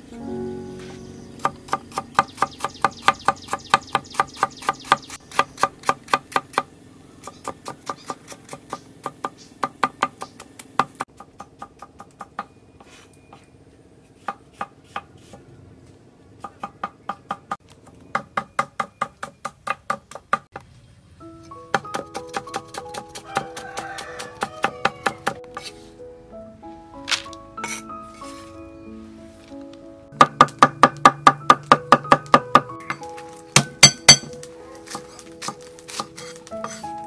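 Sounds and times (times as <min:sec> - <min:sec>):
faint background music: 0:00.0 - 0:05.4, 0:20.7 - 0:37.0
cleaver chopping on wooden block: 0:21.8 - 0:25.7, 0:30.2 - 0:36.8.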